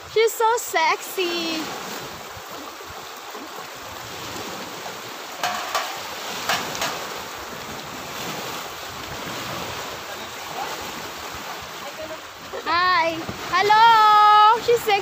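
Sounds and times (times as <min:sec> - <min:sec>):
waves washing onto pebble beach: 0:00.0 - 0:15.0
wind on microphone: 0:01.4 - 0:15.0.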